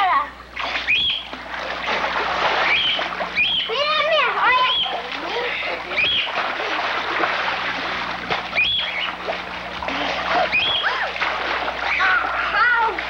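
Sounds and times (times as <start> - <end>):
water splashing in a pool: 0.4 - 13.0
high-pitched cries: 10.4 - 11.2.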